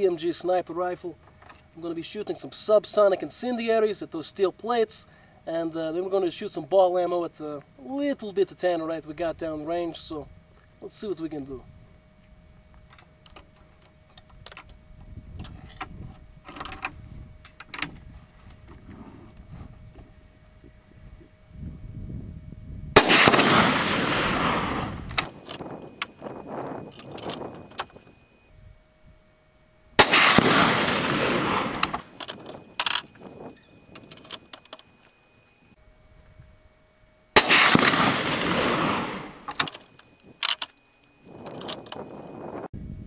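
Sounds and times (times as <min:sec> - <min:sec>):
suppressed rifle shots: 0:23.0 - 0:27.9, 0:30.0 - 0:33.3, 0:37.4 - 0:40.6.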